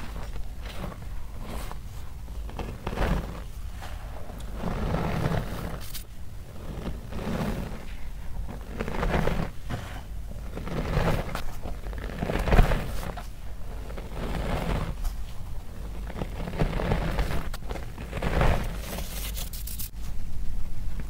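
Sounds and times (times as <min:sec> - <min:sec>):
chalk squeaky crunching by hand: 0:15.8 - 0:19.9.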